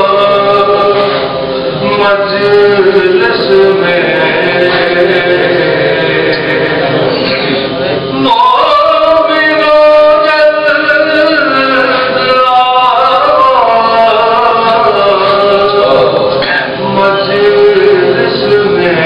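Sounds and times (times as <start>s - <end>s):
men chanting: 0.0s - 19.0s.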